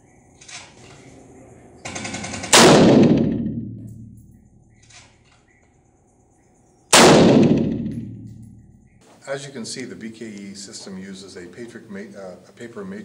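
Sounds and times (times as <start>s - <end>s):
gunshot echoing indoors: 1.9s - 4.8s, 6.9s - 8.8s.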